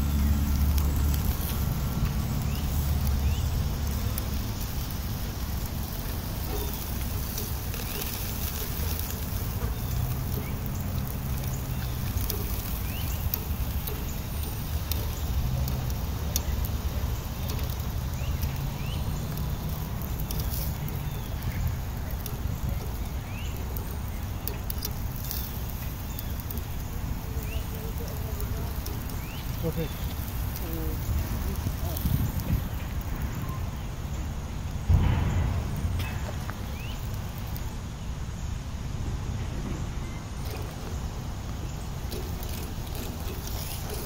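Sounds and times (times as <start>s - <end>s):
fire popping: 0.0s - 44.0s
wood fire crackling: 0.0s - 44.0s
low rumble: 34.5s - 37.9s.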